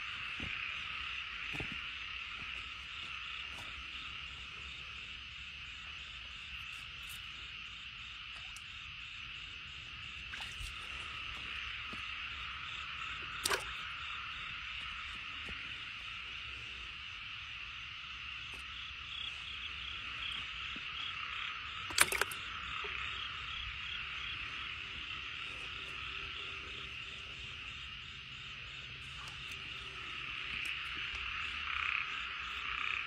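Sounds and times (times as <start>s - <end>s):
frogs chorus: 0.0s - 33.0s
sharp click: 21.9s - 22.4s.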